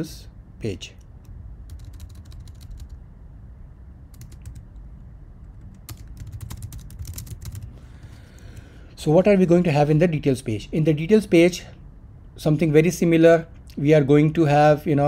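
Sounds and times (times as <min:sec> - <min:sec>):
computer keyboard typing: 0:01.2 - 0:03.0, 0:04.1 - 0:07.7.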